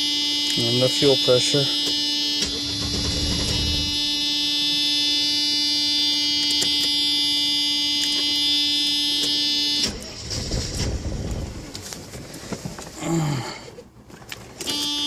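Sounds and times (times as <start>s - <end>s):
car starter motor whining: 1.5s - 5.0s, 8.1s - 11.8s.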